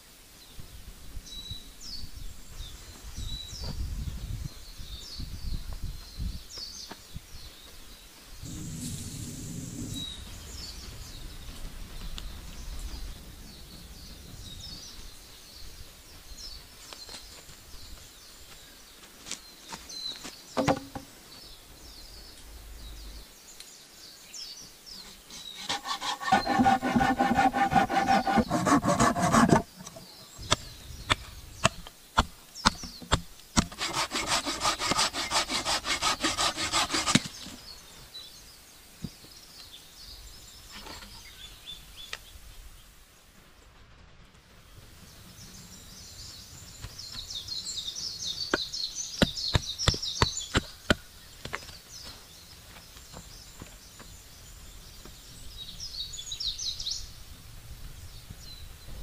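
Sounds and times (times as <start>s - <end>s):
saw cutting wood: 25.3s - 30.0s, 33.6s - 37.5s.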